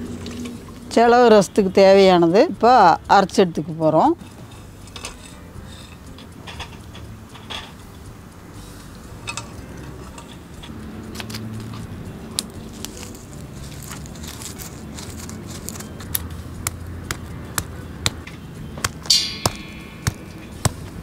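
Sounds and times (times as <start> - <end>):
low steady hum: 0.0 - 21.0
spices pounded by hand: 13.6 - 21.0.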